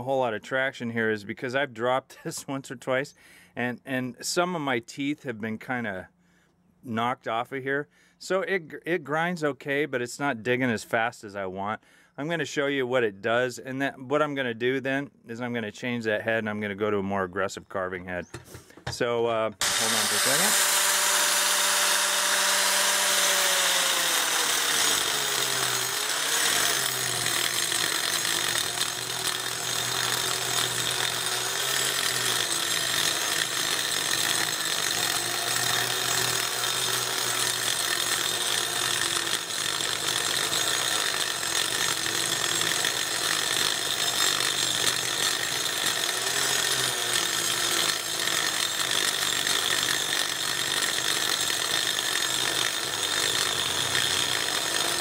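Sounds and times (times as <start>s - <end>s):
angle grinder grinding wood: 19.6s - 55.0s.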